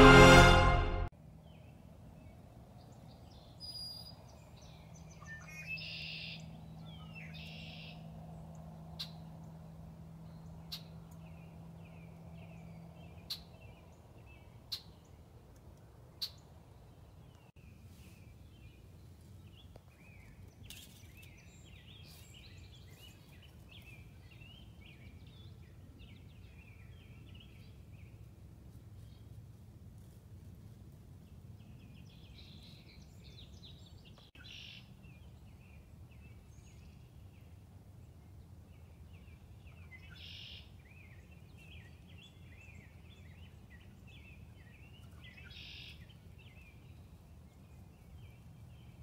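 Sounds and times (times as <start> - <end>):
songbirds chirping: 0.0 - 29.6, 30.8 - 49.0
soft rustles: 28.7 - 31.0.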